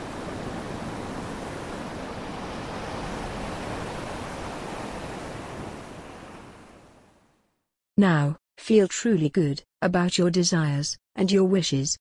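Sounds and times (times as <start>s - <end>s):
ocean waves washing ashore: 0.0s - 7.5s.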